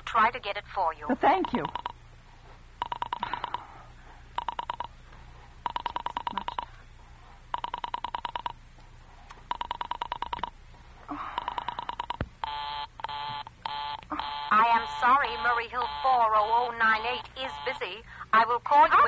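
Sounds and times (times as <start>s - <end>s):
rotary telephone dial clicking: 4.4s - 4.9s, 7.6s - 8.6s, 9.5s - 10.5s.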